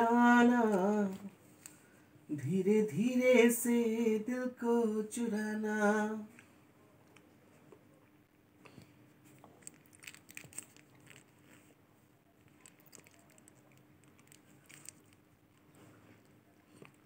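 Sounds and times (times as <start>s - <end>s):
faint steady hum: 0.0s - 17.0s
toddler eating wet clicks: 8.7s - 11.4s, 12.4s - 15.7s.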